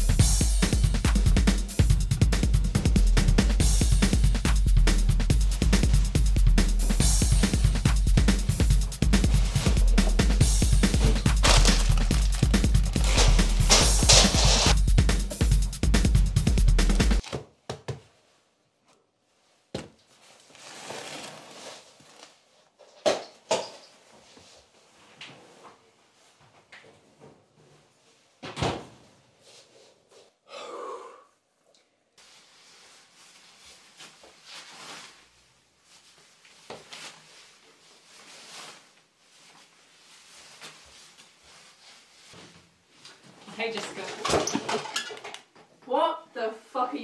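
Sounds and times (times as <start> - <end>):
rustling scrape: 8.9 - 14.8, 19.4 - 22.5, 32.2 - 43.0.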